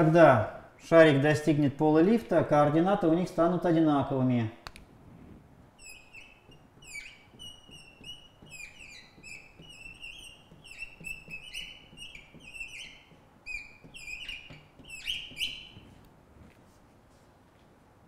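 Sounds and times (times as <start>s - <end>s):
marker squeaking on glass: 5.7s - 16.0s.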